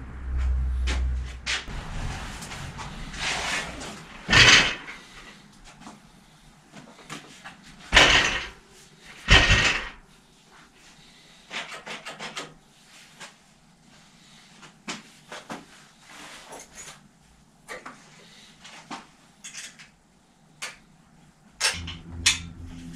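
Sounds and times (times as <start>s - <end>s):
bicycle clanking and rattling: 2.4s - 5.4s, 7.9s - 8.6s, 9.2s - 10.0s, 21.6s - 22.8s.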